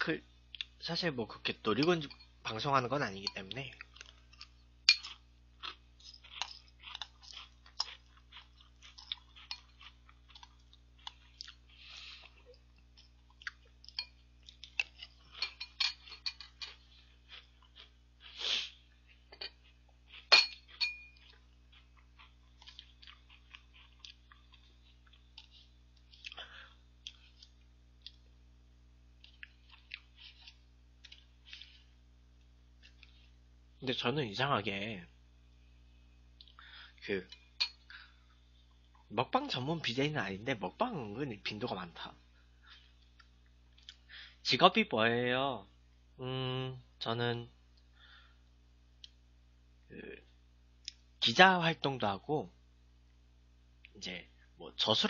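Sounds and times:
metal spoon clinking in a bowl: 1.8 - 2.4, 13.9 - 14.2, 15.3 - 16.8, 20.3 - 21.3
quiet chewing: 3.2 - 28.4, 29.0 - 33.5, 36.2 - 39.1, 42.3 - 44.3.

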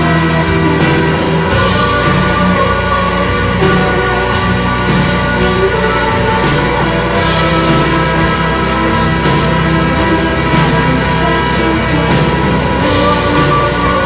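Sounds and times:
steady drum beat: 0.0 - 14.0
synthesizers and guitars: 0.0 - 14.0.

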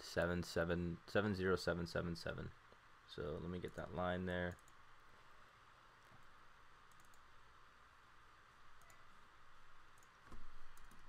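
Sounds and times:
background hiss: 0.0 - 11.0
computer mouse clicks: 4.5 - 4.8, 6.8 - 7.3, 8.8 - 9.1, 9.9 - 11.0.

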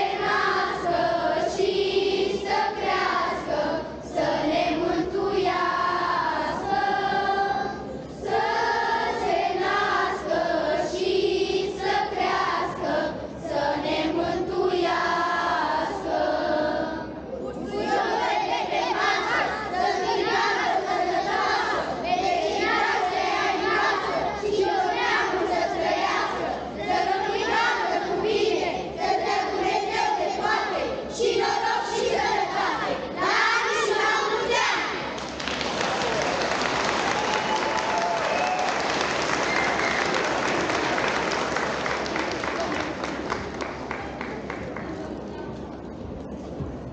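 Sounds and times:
children's choir singing a carol: 0.0 - 35.4.

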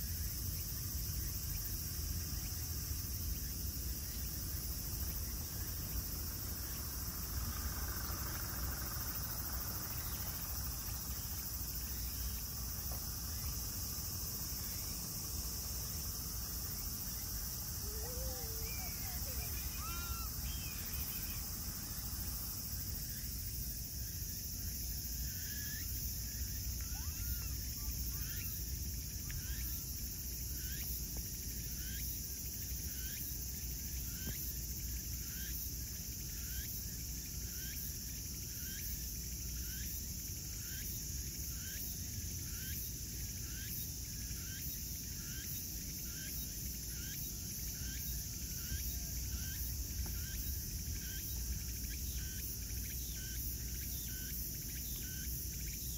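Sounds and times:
insects trilling: 0.0 - 55.9.

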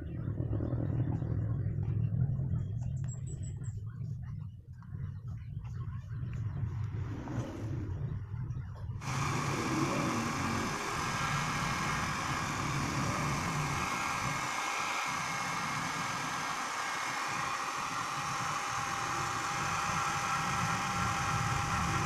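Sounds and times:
hair dryer blowing: 9.0 - 22.0
hair dryer switch: 9.0 - 22.0.

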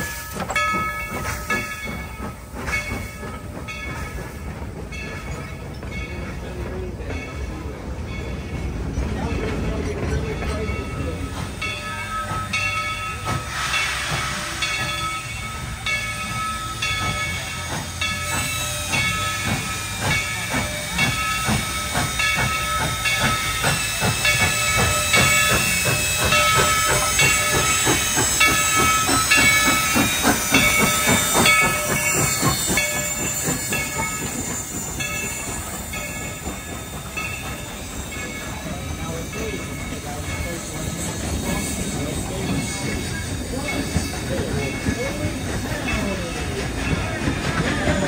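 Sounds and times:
steam hissing: 0.0 - 6.8, 9.5 - 48.0
steam locomotive exhaust chuffs: 0.0 - 48.0.

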